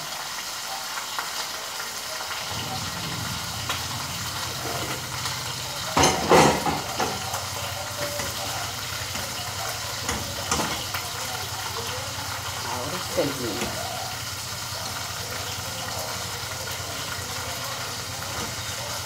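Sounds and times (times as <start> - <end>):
meat sizzling in a frying pan: 0.0 - 19.0
metal pot lid clattering: 2.5 - 7.4.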